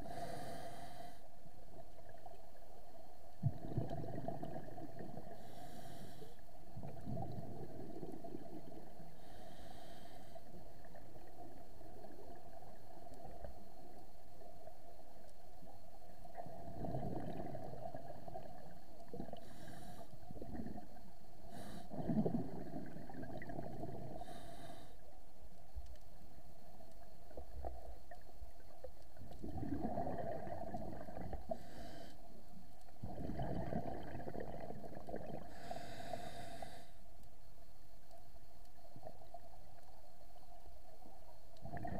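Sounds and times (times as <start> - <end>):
inhalation hisses: 0.0 - 1.3, 9.2 - 10.6, 24.2 - 25.0, 31.5 - 32.3, 35.5 - 37.0
exhaled bubbles rumbling underwater: 1.6 - 24.6, 26.6 - 36.8, 38.8 - 41.9.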